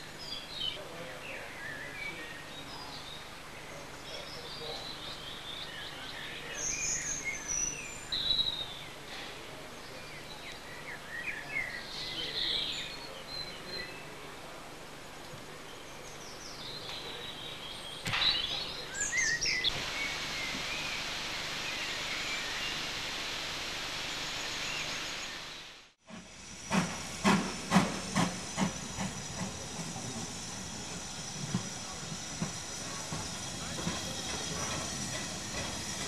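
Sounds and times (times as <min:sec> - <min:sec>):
birds chirping: 0:00.0 - 0:14.6, 0:15.3 - 0:25.7, 0:26.8 - 0:36.0
steady outdoor hiss: 0:00.0 - 0:36.0
hissing steam: 0:18.1 - 0:36.0
steam locomotive beats: 0:19.7 - 0:36.0.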